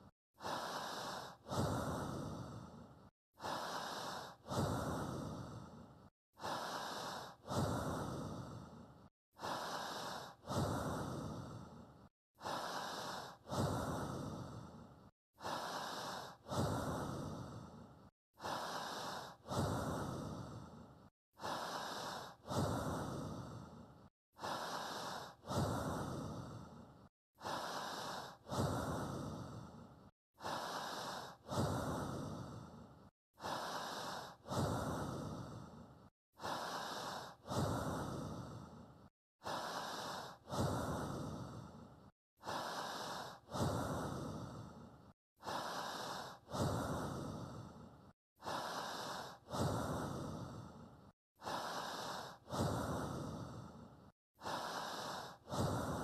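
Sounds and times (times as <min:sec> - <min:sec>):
person breathing: 0:00.0 - 0:56.0.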